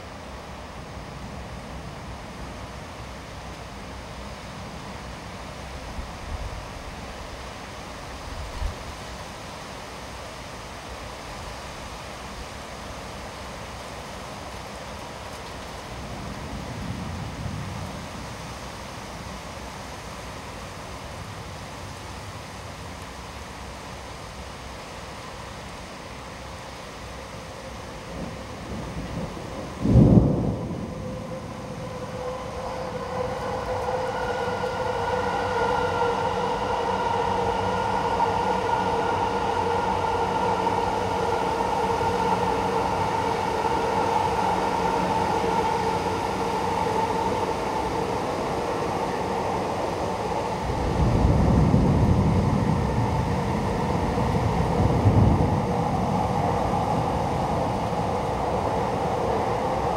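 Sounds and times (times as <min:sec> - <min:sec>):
droning hum: 0:00.0 - 0:59.9
heavy rain hissing: 0:00.0 - 0:59.9
thunder rolling: 0:28.1 - 0:59.9.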